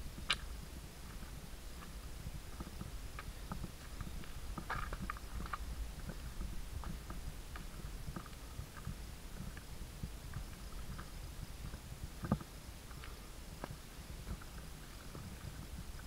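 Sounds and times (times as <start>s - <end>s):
boots footsteps on loose stones: 0.0s - 16.0s
steady low rumble: 0.0s - 16.0s.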